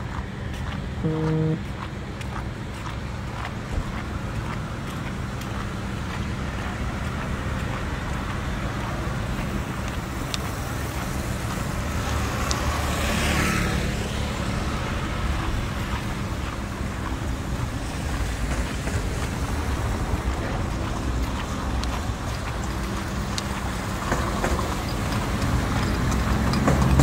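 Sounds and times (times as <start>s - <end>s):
street traffic rumble: 0.0s - 27.0s
motor scooter passing: 3.3s - 27.0s.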